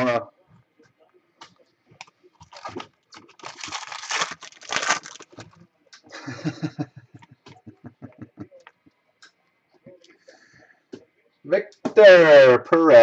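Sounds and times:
foil wrapper crinkling: 0:02.4 - 0:05.6.

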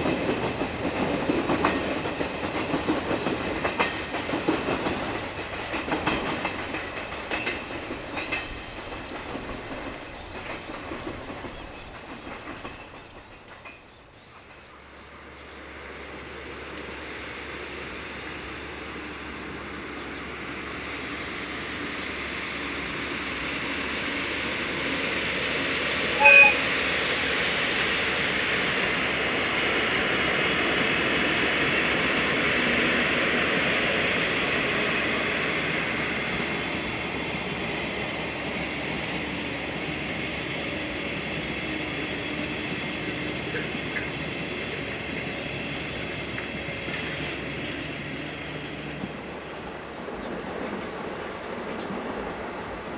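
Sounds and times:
locomotives rumbling past: 0:00.0 - 0:52.9
short horn toot: 0:26.2 - 0:26.7.

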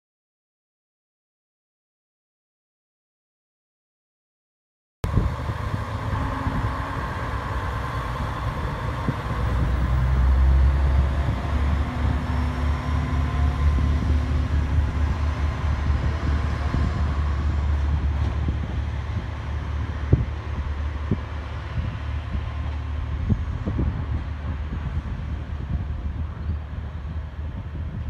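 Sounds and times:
diesel railcar engine drone: 0:05.0 - 0:28.0.

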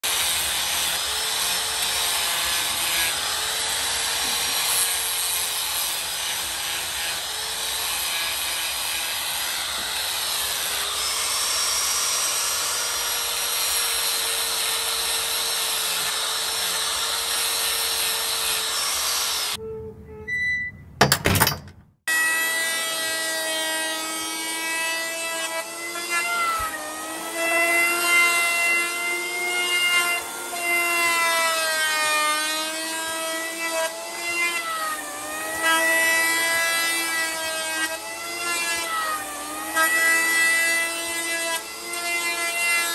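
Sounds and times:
angle grinder grinding metal: 0:00.0 - 0:19.6, 0:22.1 - 0:42.9
electric planer shaving wood: 0:00.0 - 0:19.6, 0:22.1 - 0:42.9.

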